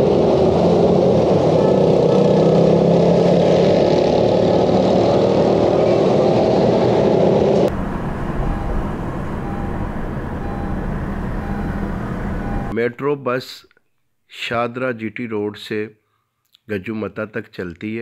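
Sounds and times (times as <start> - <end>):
loud road traffic: 0.0 - 12.7
low hum: 0.0 - 12.7.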